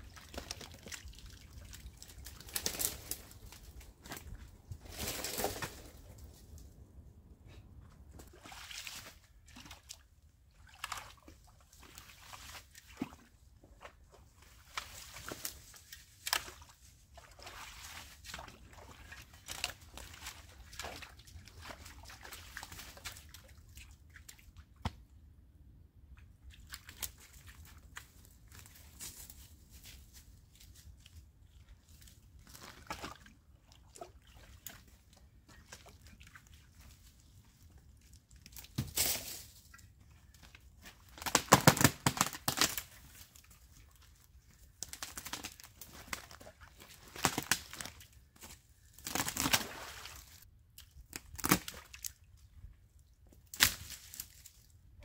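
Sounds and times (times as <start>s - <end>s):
brush crunching and rustling: 0.1s - 6.6s, 26.9s - 31.2s, 36.8s - 50.4s, 53.4s - 54.7s.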